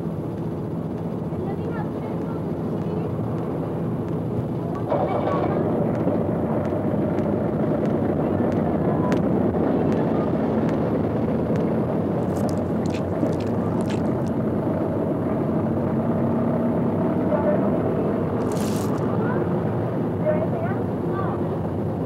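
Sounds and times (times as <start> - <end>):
city street traffic rumble: 0.0 - 22.0
paper wrappers crackling: 12.2 - 14.3, 18.4 - 19.0.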